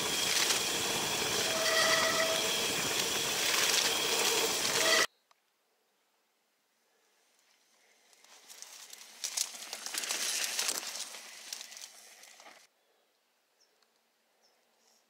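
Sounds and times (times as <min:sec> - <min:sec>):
plants swishing against bike: 0:00.0 - 0:05.1, 0:08.1 - 0:12.7
tyres rolling on dirt: 0:00.0 - 0:05.1, 0:08.2 - 0:12.7.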